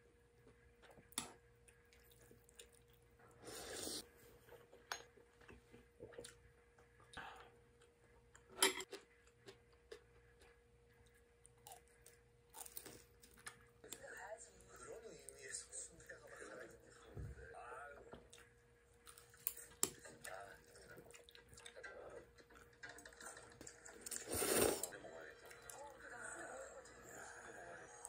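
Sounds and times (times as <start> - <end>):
person slurping: 3.4 - 4.0, 24.1 - 25.0.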